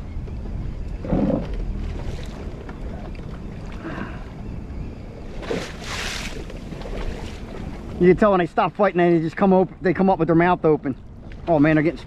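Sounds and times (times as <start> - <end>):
water against boat hull: 0.2 - 4.0, 5.3 - 8.4.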